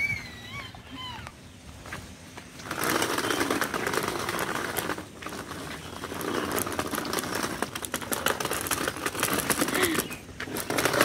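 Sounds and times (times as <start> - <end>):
cart wheels rattling on pavement: 2.5 - 11.0.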